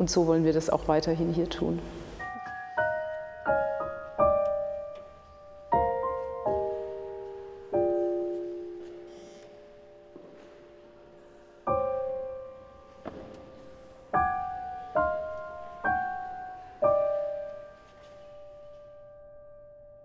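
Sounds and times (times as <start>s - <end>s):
slow single piano notes: 1.8s - 20.0s.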